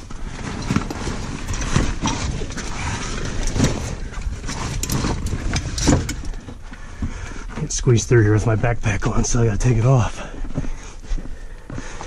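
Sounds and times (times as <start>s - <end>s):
footsteps on rocky slope: 10.0s - 12.0s.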